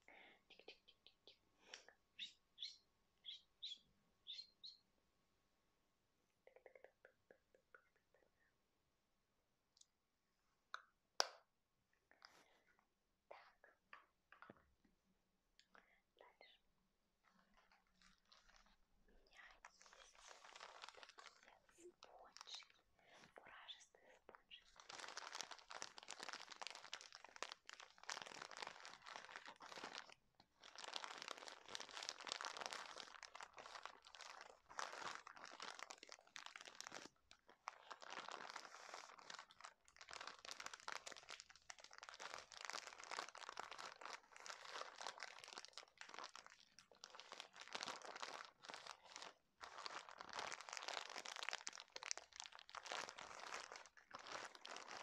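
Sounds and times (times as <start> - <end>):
plastic wrapping crinkling: 17.3 - 55.0.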